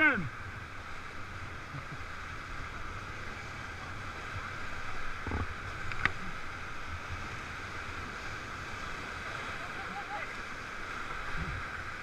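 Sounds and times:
whitewater rapids rushing: 0.0s - 12.0s.

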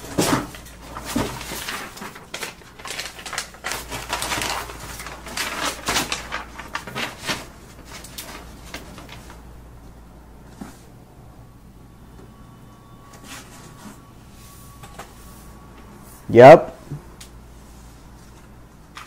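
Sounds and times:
paper envelope crinkling: 0.1s - 9.5s.

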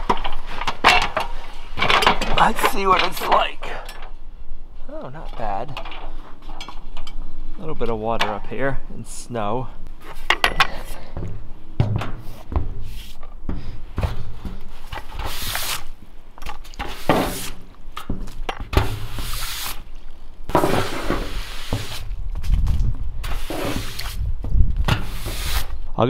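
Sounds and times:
footsteps on metal: 10.0s - 15.4s, 16.4s - 19.1s
broom scraping metal roof: 11.8s - 16.0s, 16.8s - 17.7s, 18.7s - 19.9s, 20.5s - 22.1s, 23.2s - 24.3s, 24.9s - 25.8s.

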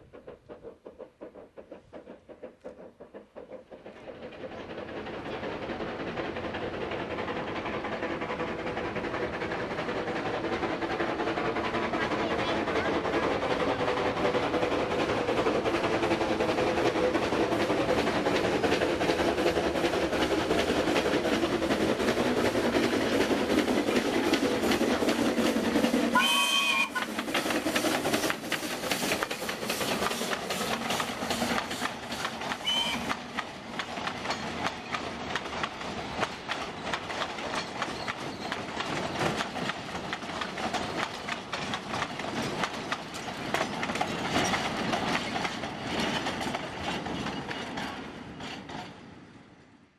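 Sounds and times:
steam locomotive approaching: 0.0s - 49.9s
wagons clattering over rail joints: 14.6s - 49.0s
steam whistle: 26.1s - 27.1s, 32.6s - 33.1s.

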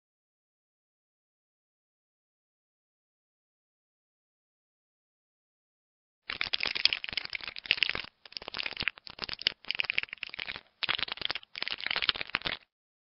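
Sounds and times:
dry crackling and clicking: 6.3s - 12.7s.

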